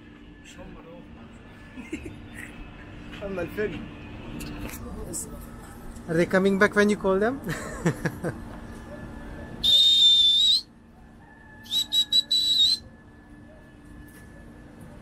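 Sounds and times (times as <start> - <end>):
shrill whistles: 9.6 - 10.7, 11.6 - 12.9.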